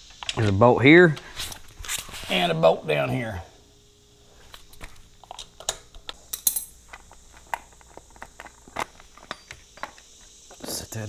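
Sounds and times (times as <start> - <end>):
metallic tool clicks and clinks: 5.3 - 7.2, 9.2 - 10.0.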